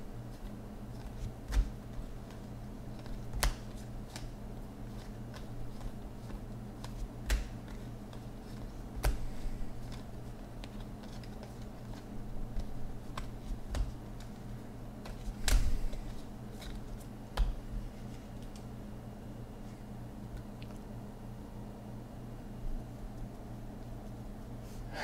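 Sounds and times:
steady low hum: 0.0 - 25.0
trading cards clicking and snapping: 1.0 - 14.4, 15.0 - 17.6.

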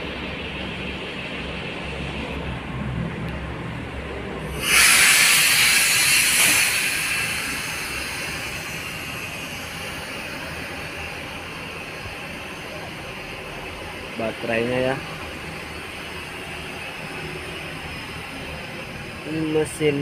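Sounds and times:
compressed air hissing: 4.5 - 12.3.

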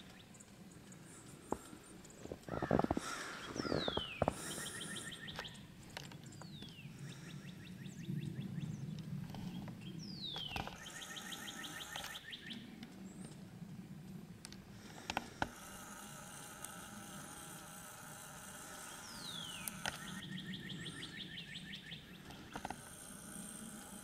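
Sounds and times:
faint low hum: 0.0 - 24.0
songbird whistle and trill: 3.4 - 5.6, 9.9 - 12.6.

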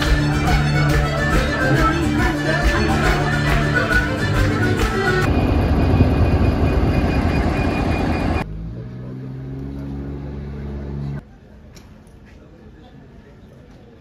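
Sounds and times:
diesel locomotive engine running: 4.7 - 11.2
low hum: 5.3 - 8.9.

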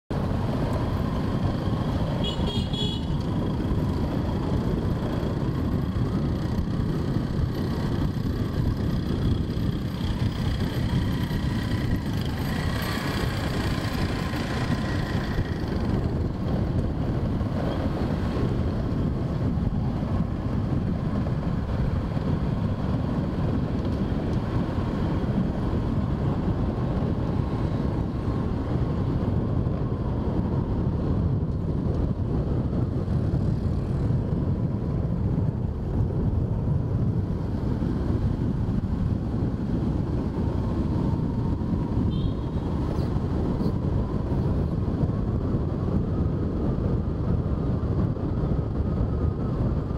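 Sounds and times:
motorbike engine and road rumble: 0.1 - 49.9
horn toot: 2.2 - 3.2.

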